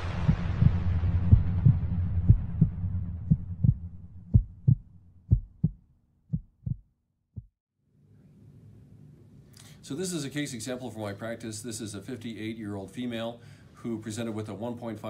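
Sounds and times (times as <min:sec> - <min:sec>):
low electronic drone: 0:00.0 - 0:05.2
electronic low thumps: 0:00.0 - 0:07.5.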